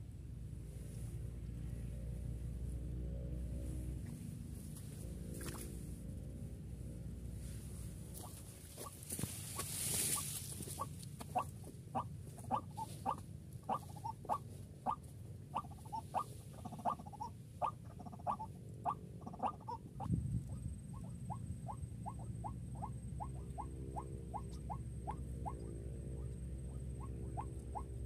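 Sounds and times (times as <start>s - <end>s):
waterhen calling: 8.2s - 28.0s.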